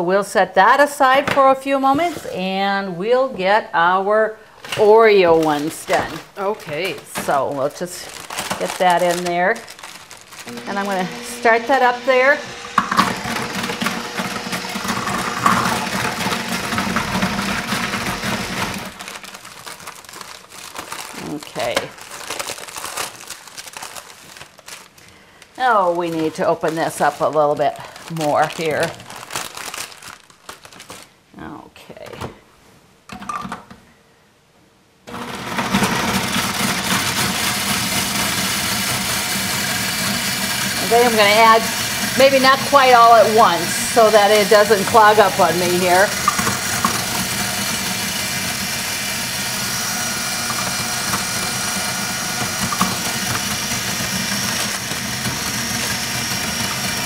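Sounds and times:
blender grinding cookies: 4.7s - 24.5s, 25.6s - 29.2s, 35.1s - 57.0s.

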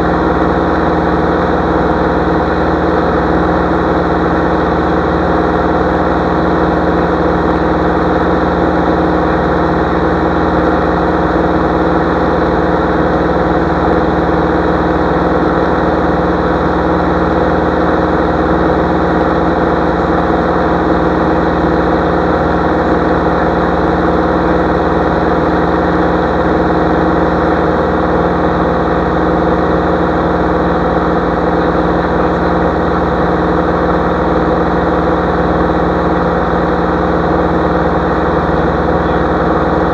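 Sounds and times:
propeller aircraft engine drone: 0.0s - 39.9s.

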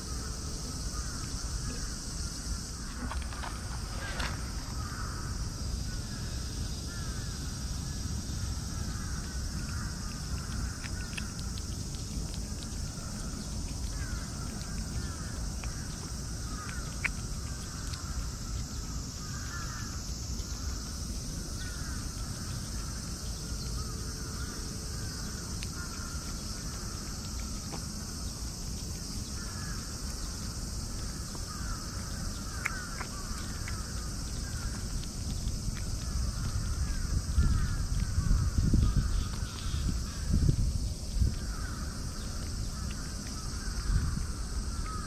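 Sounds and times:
insects chirring: 0.0s - 45.0s
low outdoor rumble: 0.0s - 45.0s
crows cawing: 0.9s - 2.0s, 2.9s - 5.4s, 6.9s - 8.0s, 8.8s - 11.3s, 13.0s - 20.8s, 21.6s - 23.0s, 23.8s - 27.0s, 29.4s - 29.9s, 31.2s - 34.8s, 36.0s - 40.3s, 41.4s - 42.0s, 42.8s - 45.0s.

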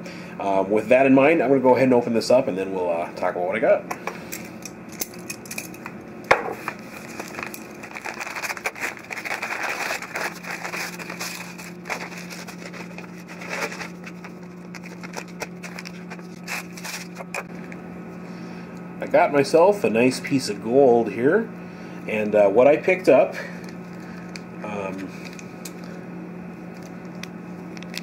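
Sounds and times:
envelope being torn open: 6.6s - 17.5s
packing rustling and crinkling: 6.6s - 17.5s.

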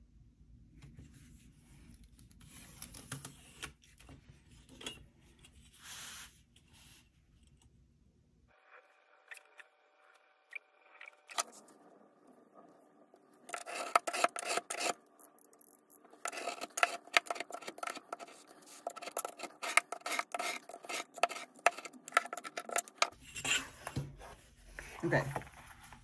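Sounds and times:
knife scoring board along ruler: 13.5s - 15.0s, 16.2s - 23.7s.

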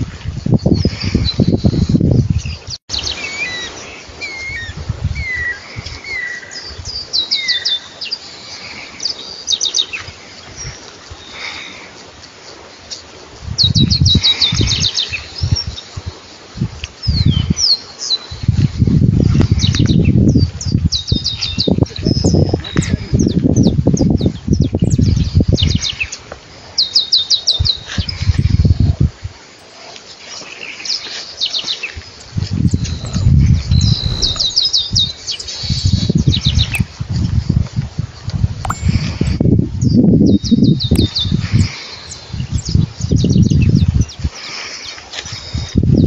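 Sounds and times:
finch singing: 31.5s - 36.8s
low rumbling noise: 32.6s - 34.8s.

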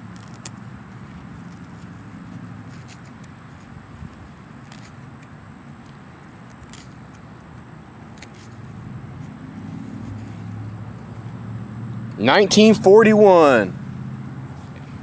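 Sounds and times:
low engine-like hum: 0.0s - 15.0s
high-pitched whine: 9.0s - 14.4s.

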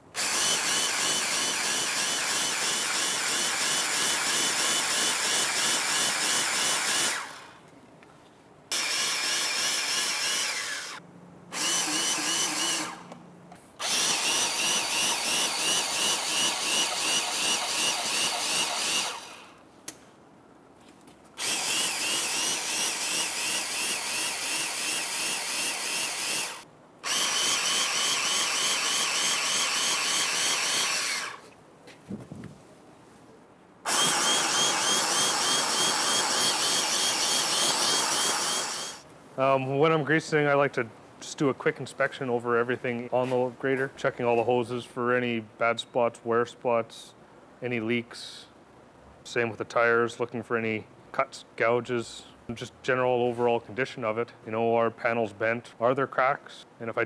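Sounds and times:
cordless grease gun pulsing: 0.2s - 7.5s, 8.7s - 13.2s, 13.8s - 19.6s, 21.4s - 31.5s, 33.9s - 39.0s.

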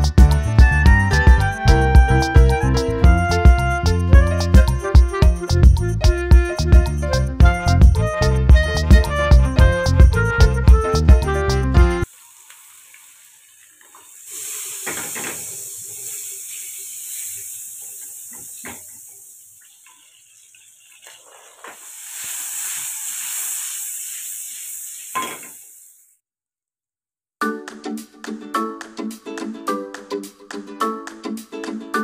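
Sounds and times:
hot fat sizzling in a frying pan: 12.0s - 26.2s.

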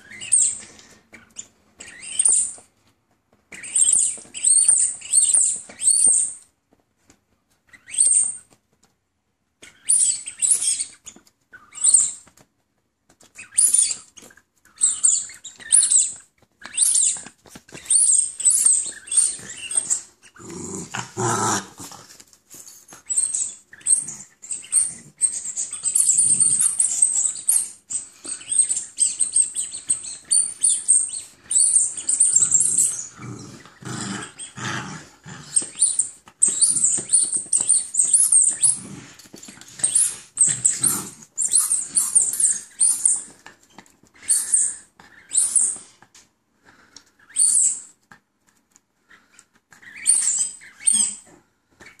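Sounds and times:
chewing and scuffling: 16.3s - 44.1s
puppy growling: 18.7s - 22.4s, 31.8s - 42.7s.

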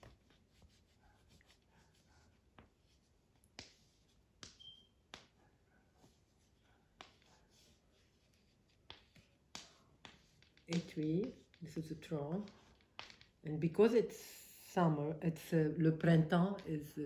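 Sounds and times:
faint squeak: 4.6s - 5.0s
drawing tool scratching: 6.0s - 13.4s.

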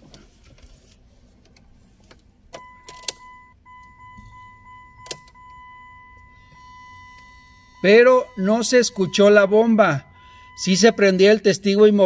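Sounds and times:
car keys jangling and clicking: 2.0s - 11.0s
faint high electronic tone: 2.6s - 12.0s.

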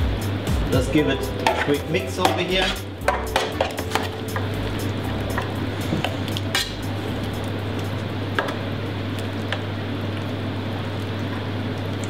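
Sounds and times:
steady hiss and low hum: 0.0s - 12.0s
spatula knocking metal pan: 1.4s - 4.6s.

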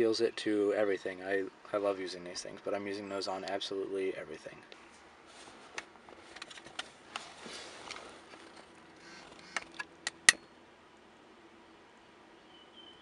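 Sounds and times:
wires rustling: 4.7s - 10.4s.

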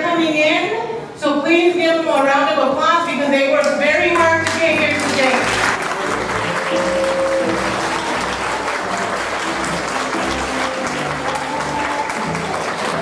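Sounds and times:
audience applauding: 4.2s - 13.0s
melody of held notes: 5.0s - 13.0s.

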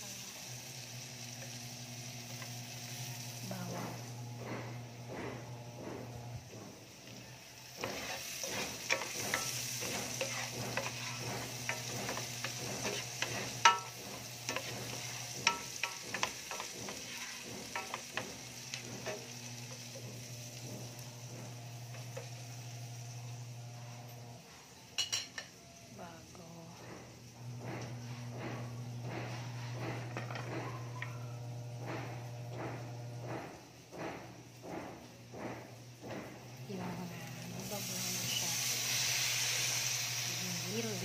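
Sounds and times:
onion sizzling in a frying pan: 0.0s - 26.4s, 27.2s - 33.2s, 36.5s - 41.0s
utensil scraping a pan: 7.7s - 22.3s.

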